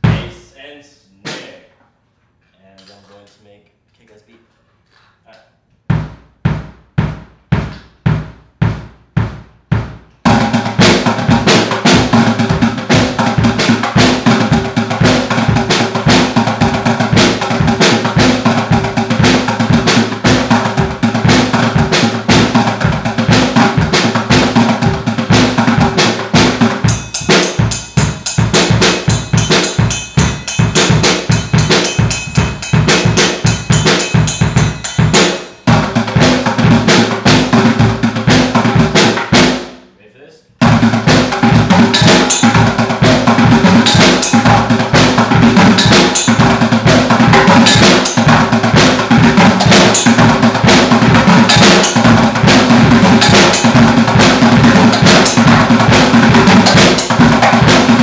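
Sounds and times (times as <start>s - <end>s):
improvised drum kit playing: 0.0s - 1.8s, 5.8s - 58.0s
ringing metal: 26.9s - 35.8s.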